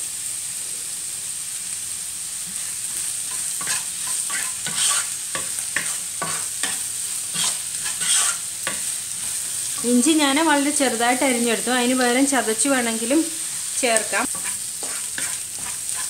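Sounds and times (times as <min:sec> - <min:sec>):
onions sizzling in hot oil: 0:00.0 - 0:16.0
wooden spatula scraping a pan: 0:02.4 - 0:10.0, 0:13.4 - 0:16.0.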